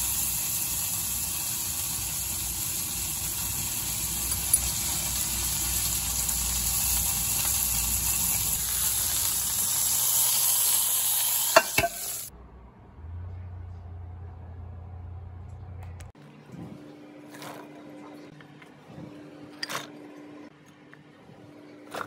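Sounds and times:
food sizzling in a pan: 0:00.0 - 0:12.3.

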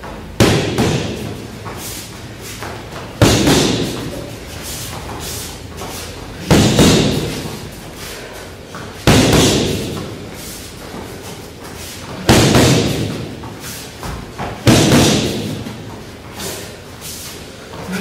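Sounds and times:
punches smacking focus mitts: 0:03.2 - 0:04.2, 0:12.2 - 0:13.4, 0:14.0 - 0:15.7.

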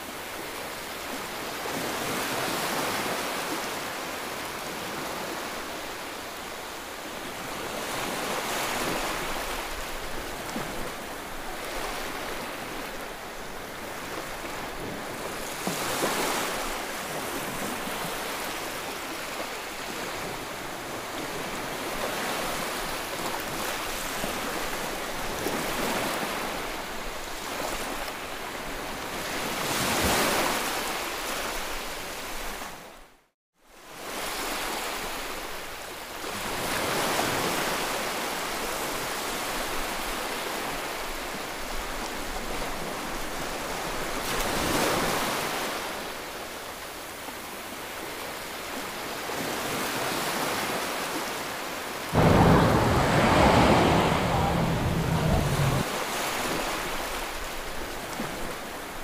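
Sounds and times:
small waves breaking on beach: 0:47.0 - 0:54.2.

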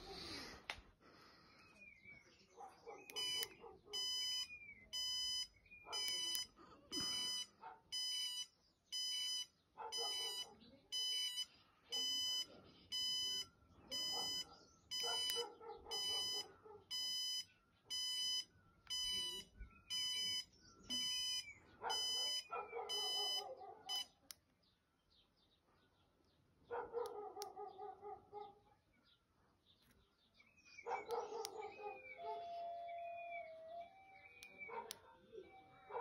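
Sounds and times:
dog barking: 0:02.5 - 0:04.1, 0:05.8 - 0:06.4, 0:07.4 - 0:08.0, 0:09.8 - 0:10.8, 0:13.9 - 0:17.0, 0:21.7 - 0:24.2, 0:26.6 - 0:28.9, 0:30.8 - 0:32.6, 0:34.5 - 0:36.0.

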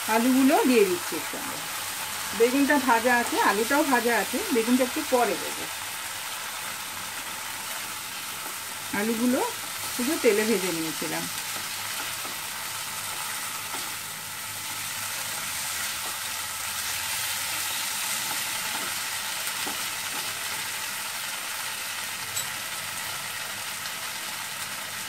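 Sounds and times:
potatoes sizzling in oil: 0:00.0 - 0:25.0
spatula stirring: 0:11.4 - 0:16.3.

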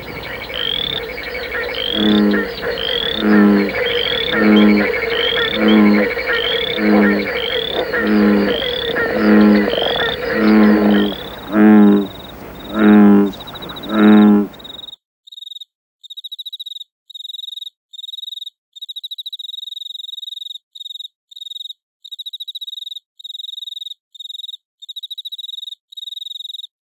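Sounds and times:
high rising chirps: 0:00.0 - 0:14.8
cricket trilling: 0:00.0 - 0:14.9
frogs croaking in chorus: 0:00.0 - 0:14.9.

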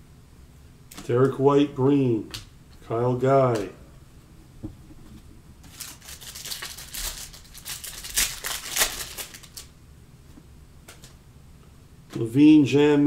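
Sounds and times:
trading cards rustling and sliding: 0:05.6 - 0:09.7.

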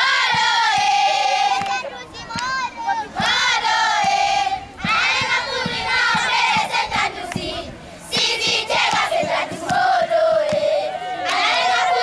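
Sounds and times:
low thumping beat: 0:00.0 - 0:01.8, 0:03.2 - 0:10.8
girls singing together: 0:00.0 - 0:01.9, 0:03.0 - 0:12.0.

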